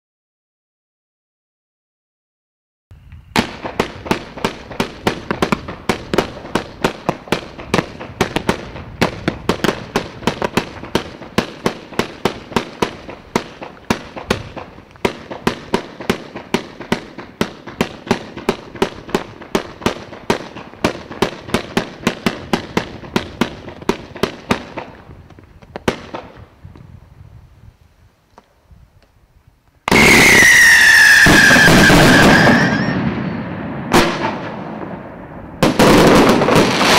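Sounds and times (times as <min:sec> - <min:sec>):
firework crackle: 0:03.0 - 0:36.9
firework hissing whistle: 0:29.8 - 0:33.5.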